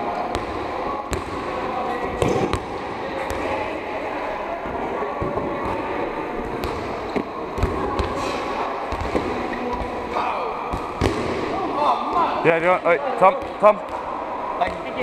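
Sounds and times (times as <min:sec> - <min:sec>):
volleyballs thudding and slapping: 0:00.3 - 0:03.5, 0:06.5 - 0:10.0, 0:10.6 - 0:12.3.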